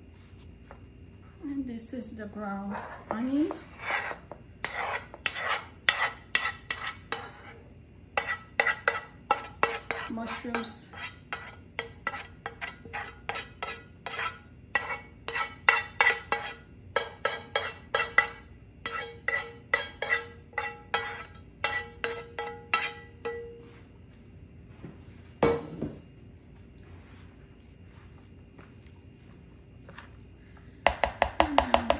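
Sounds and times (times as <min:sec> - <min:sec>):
spoon knocking on metal pan: 0:15.7 - 0:23.6, 0:30.8 - 0:31.9.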